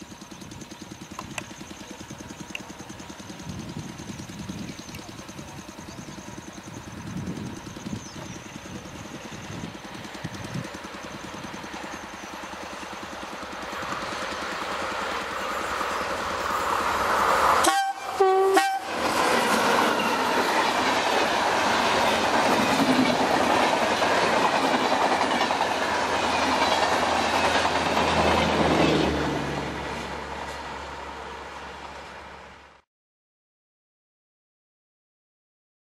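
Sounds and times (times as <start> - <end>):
train wheels clattering on rails: 0.1 - 18.0, 18.6 - 30.7
train horn hoots: 17.6 - 19.1.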